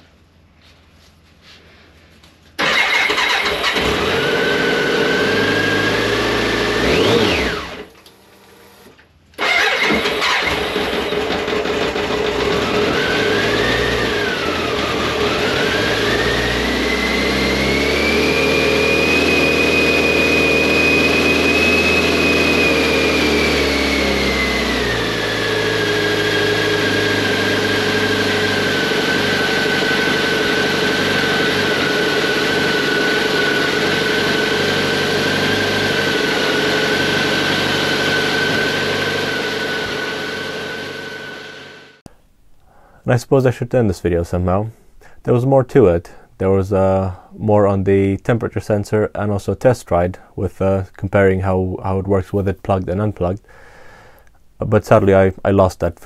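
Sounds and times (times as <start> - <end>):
motorcycle engine starting and revving: 2.6 - 42.0.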